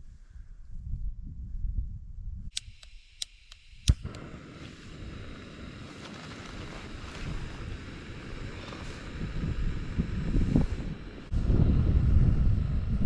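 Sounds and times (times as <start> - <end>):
stove igniter clicking: 2.5 - 5.5
gas burner hissing: 2.6 - 13.0.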